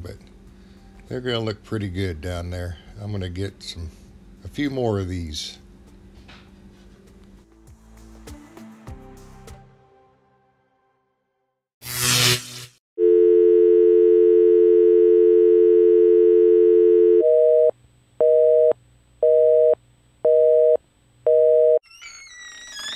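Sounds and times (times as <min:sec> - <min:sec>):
busy signal beeps: 0:13.0 - 0:17.7
telephone dial tone: 0:13.0 - 0:21.8.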